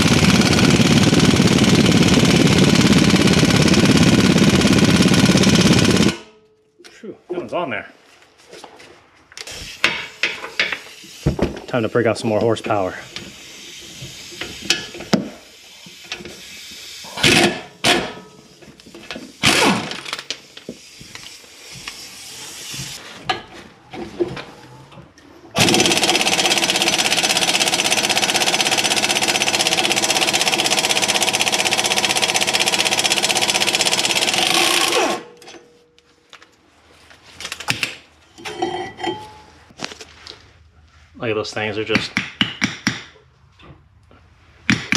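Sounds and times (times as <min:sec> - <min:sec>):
impact wrench hammering: 0:17.2 - 0:18.4, 0:25.6 - 0:35.6, 0:42.0 - 0:43.2
tools knocking and clanking: 0:37.7 - 0:39.6.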